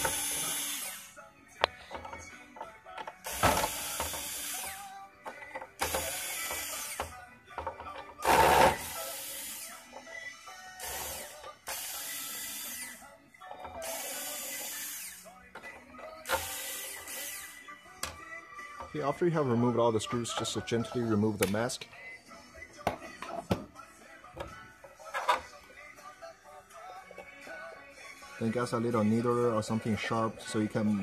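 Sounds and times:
electric screwdriver running: 0:00.0 - 0:01.1, 0:03.2 - 0:04.9, 0:05.8 - 0:07.2, 0:08.2 - 0:09.8, 0:10.8 - 0:13.0, 0:13.7 - 0:15.3, 0:16.2 - 0:17.6.

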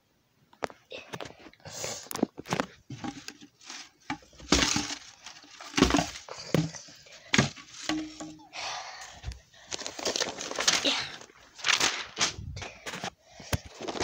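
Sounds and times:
paper rustling: 0:02.2 - 0:08.4, 0:09.0 - 0:14.0
book knocking and thudding: 0:04.1 - 0:08.4.

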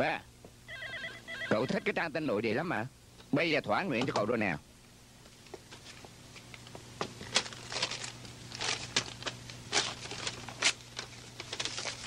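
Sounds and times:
paper rustling and crinkling: 0:07.1 - 0:12.0.

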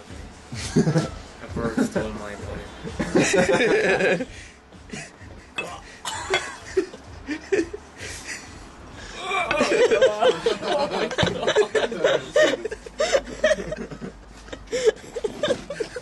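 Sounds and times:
people laughing: 0:00.5 - 0:05.2, 0:06.2 - 0:08.6, 0:09.2 - 0:16.0.

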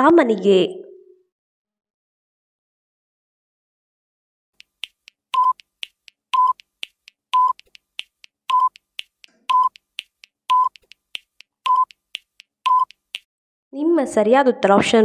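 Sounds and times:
countdown timer beeps: 0:04.6 - 0:13.2
quick clicking ticks: 0:04.6 - 0:13.3.

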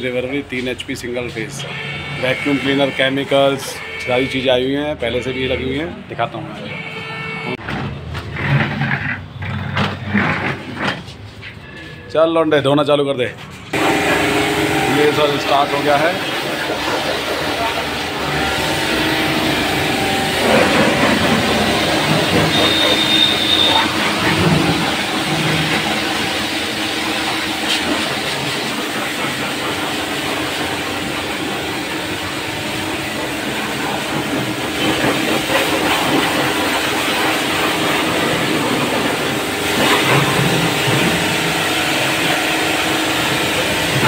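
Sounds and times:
electric motor hum: 0:13.8 - 0:35.3
high-pressure water jet hiss: 0:13.8 - 0:44.0.

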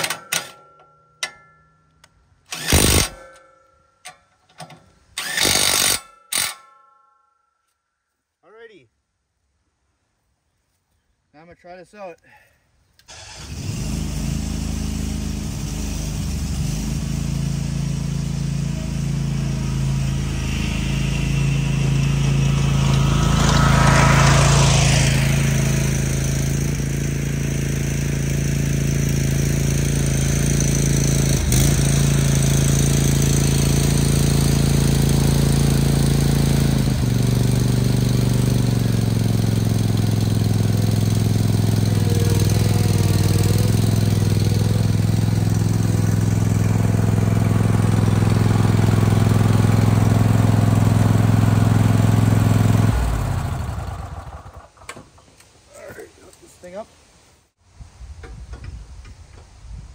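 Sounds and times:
mower engine running: 0:02.5 - 0:03.3, 0:04.6 - 0:06.6, 0:13.1 - 0:55.0.

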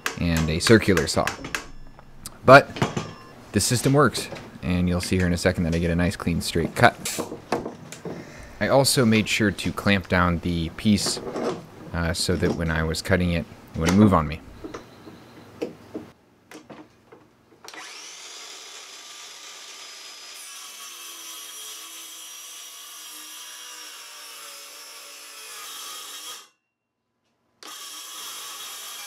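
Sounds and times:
circular saw cutting wood: 0:17.7 - 0:26.5, 0:27.6 - 0:29.0.

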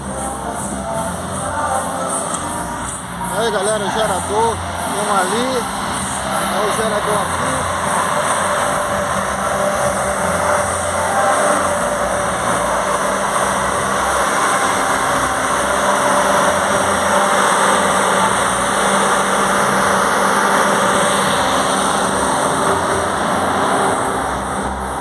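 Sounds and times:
diesel generator running: 0:00.0 - 0:25.0.

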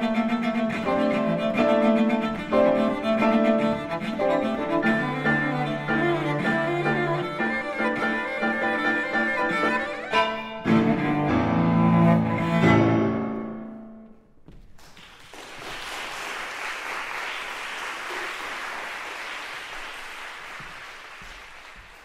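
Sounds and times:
audience applauding: 0:14.8 - 0:22.0.

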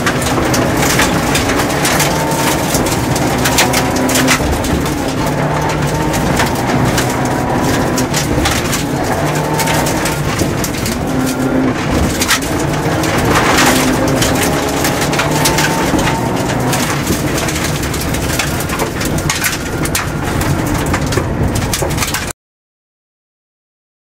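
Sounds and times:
gravel clattering against car underbody: 0:00.0 - 0:22.3
rally car engine running hard: 0:00.0 - 0:22.3.

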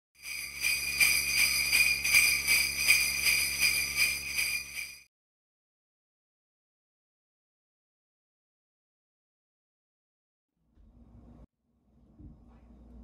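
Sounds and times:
sleigh bells jingling: 0:00.2 - 0:05.1.

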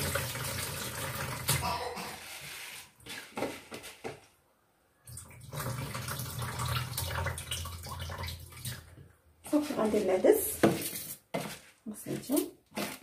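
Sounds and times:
tap water running: 0:00.0 - 0:01.6, 0:05.1 - 0:09.1.

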